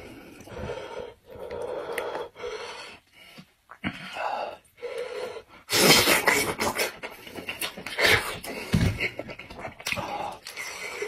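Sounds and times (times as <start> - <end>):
man chewing and smacking: 6.8 - 10.7.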